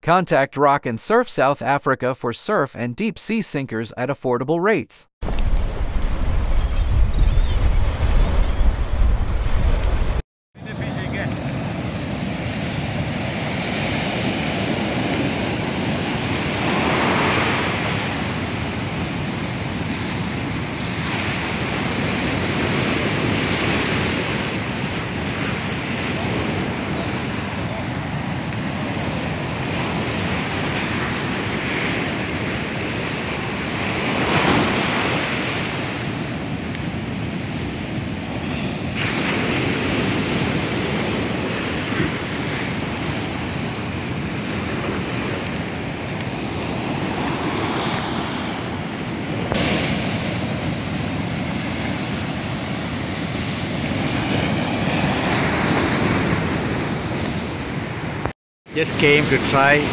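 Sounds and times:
wind on microphone: 5.2 - 10.2
surf breaking on beach: 5.2 - 59.9.

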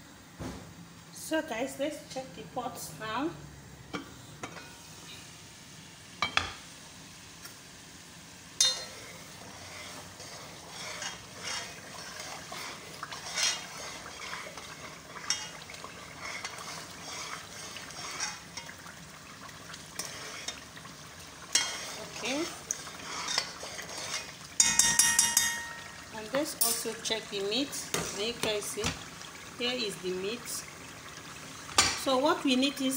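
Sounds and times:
sauce bubbling and sizzling: 3.4 - 32.9
spoon clinking against pot: 8.6 - 8.9, 24.1 - 26.0
spoon scraping in pot: 8.6 - 18.8, 19.9 - 20.7, 21.4 - 26.0
metallic clatter with ringing: 24.6 - 25.9.

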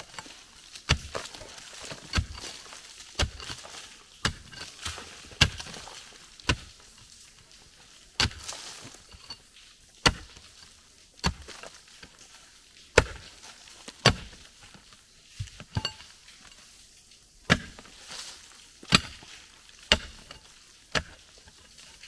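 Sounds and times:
pickaxe chopping into dirt: 0.9 - 6.8, 8.2 - 8.8, 10.0 - 10.5, 11.2 - 11.7, 13.0 - 13.3, 14.0 - 14.4, 17.5 - 17.9, 18.9 - 19.3, 19.9 - 21.2
pickaxe metallic clink: 15.7 - 16.1.

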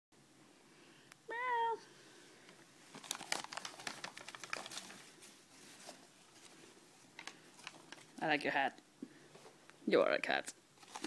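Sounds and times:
paper bag crinkling: 2.8 - 8.4, 10.8 - 11.0.

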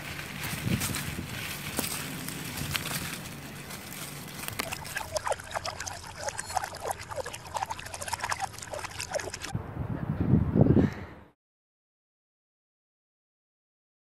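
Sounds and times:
steady outdoor hiss: 0.0 - 7.8
spoon stirring water: 4.2 - 9.5
water dripping in a metal cup: 4.3 - 9.5.

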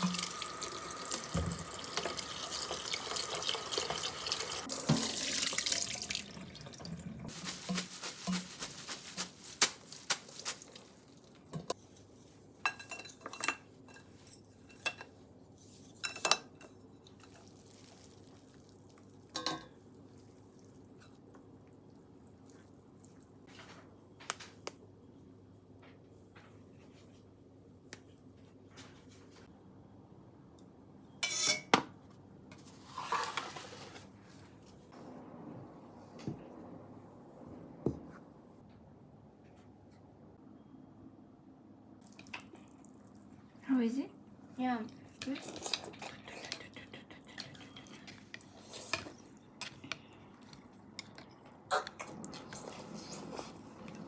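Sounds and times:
tap water running into a pot: 0.0 - 7.3.

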